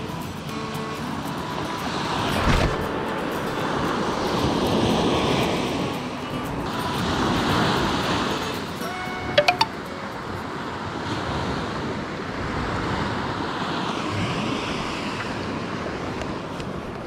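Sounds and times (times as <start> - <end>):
surf breaking on beach: 1.2 - 9.4.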